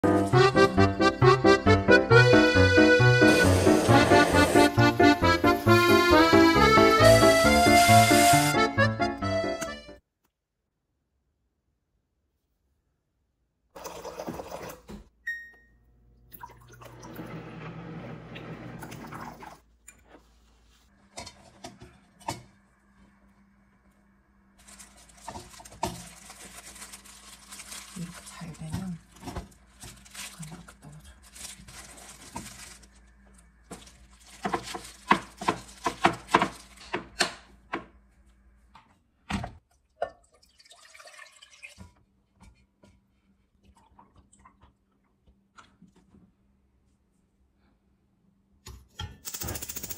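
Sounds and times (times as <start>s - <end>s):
rustling: 24.6s - 36.8s
liquid pouring into glass cup: 40.3s - 41.8s.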